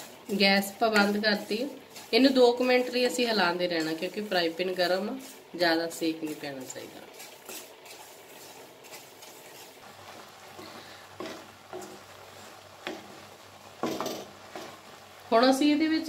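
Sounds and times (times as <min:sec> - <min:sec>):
spoon scraping metal pan: 0:00.0 - 0:09.8.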